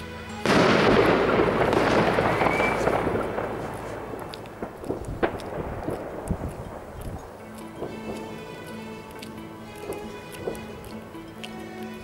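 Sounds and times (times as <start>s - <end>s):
firework crackling: 0.0s - 8.5s, 9.6s - 10.8s
firework bang: 0.4s - 4.2s
firework pops: 0.4s - 7.2s
rising whistle: 2.2s - 3.1s.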